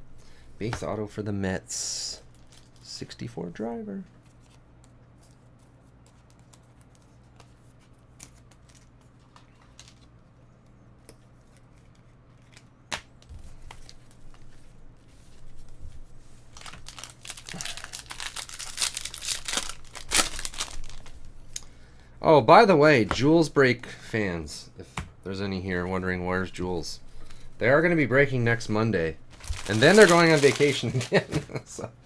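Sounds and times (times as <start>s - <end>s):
wrapper tearing and crinkling: 2.3s - 2.9s, 16.5s - 21.2s, 29.3s - 31.3s.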